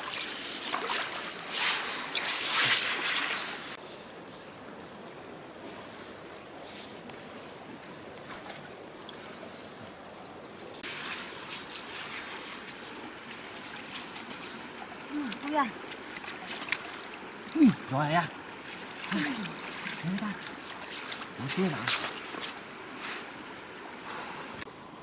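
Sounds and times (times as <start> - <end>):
stream water trickling: 0.0 - 3.8, 10.8 - 24.0.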